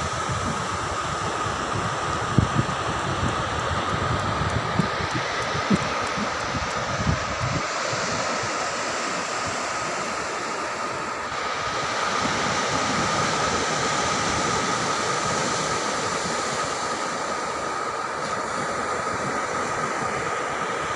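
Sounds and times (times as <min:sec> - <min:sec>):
wind on microphone: 0:00.0 - 0:09.6
thin steady whine: 0:00.0 - 0:20.9.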